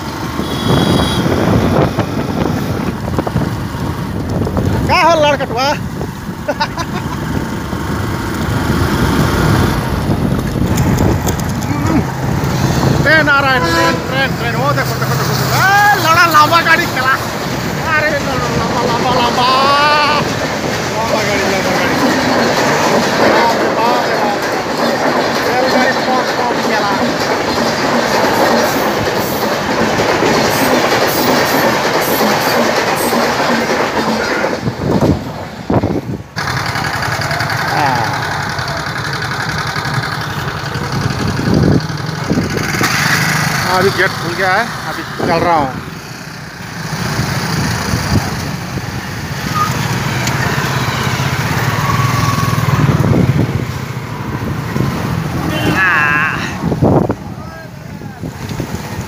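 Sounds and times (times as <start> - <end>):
train wheels clattering on track: 0.0 - 55.6, 58.2 - 59.0
road noise: 0.0 - 59.0
motorcycle engines running: 36.3 - 56.3.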